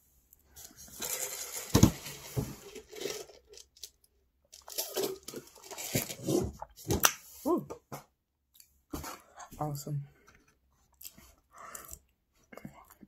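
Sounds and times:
food packaging crinkling: 0:00.6 - 0:06.3.

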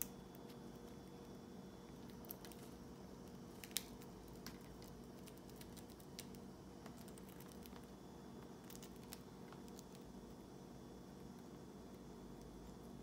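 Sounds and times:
faint steady hum: 0:00.0 - 0:13.0
birds cracking chickpeas: 0:01.9 - 0:07.9.

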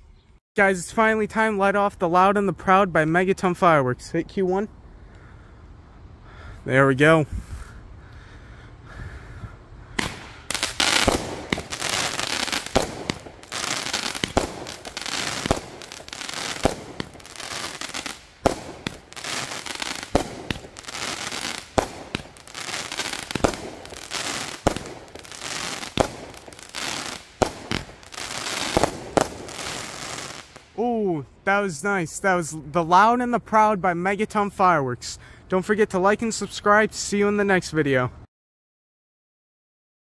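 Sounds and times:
firework cake firing: 0:10.0 - 0:30.8
firework crackling: 0:10.0 - 0:30.8.

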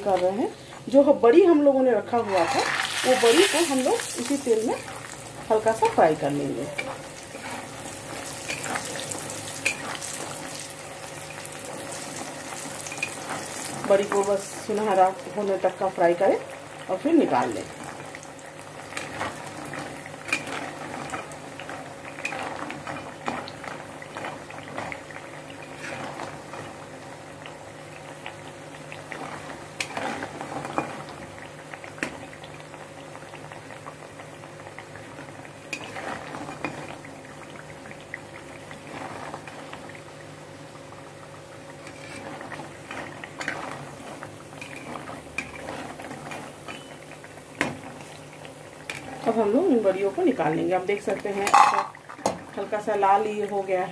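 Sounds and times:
dumplings frying in oil: 0:00.0 - 0:53.9
sharp clicks of frying oil: 0:02.2 - 0:53.9.

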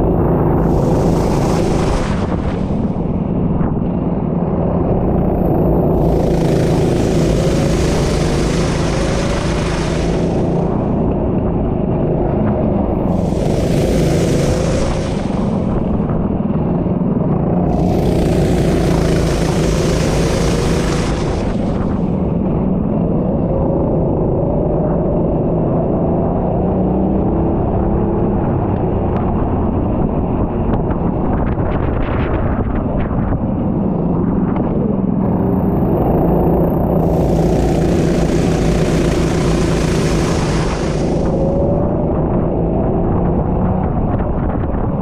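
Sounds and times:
loud rushing hiss: 0:00.4 - 0:03.2, 0:06.0 - 0:11.0, 0:13.1 - 0:16.0, 0:17.7 - 0:22.2, 0:37.0 - 0:41.6
kart engine revving: 0:05.5 - 0:11.0, 0:13.1 - 0:15.8, 0:17.7 - 0:22.2, 0:35.8 - 0:41.7.

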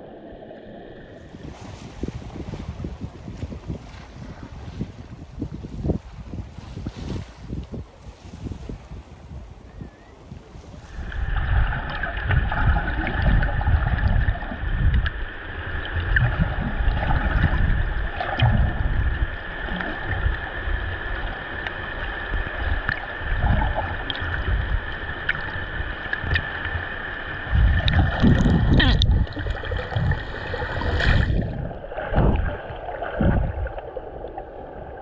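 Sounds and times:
water rushing underwater: 0:00.0 - 0:03.3, 0:10.6 - 0:35.0
faint steady whine: 0:09.4 - 0:35.0.

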